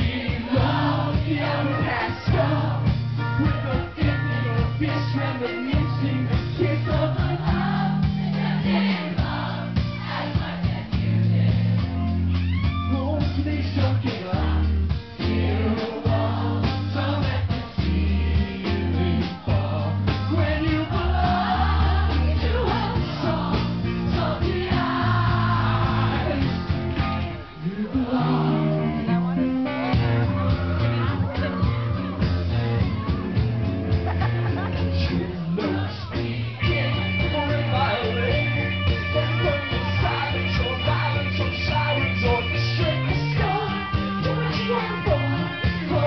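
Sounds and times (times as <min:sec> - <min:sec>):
man singing: 0:00.0 - 0:07.6, 0:12.7 - 0:21.6, 0:22.2 - 0:33.4, 0:34.5 - 0:46.0
heavy bass line: 0:00.0 - 0:46.0
electric guitar: 0:25.6 - 0:46.0.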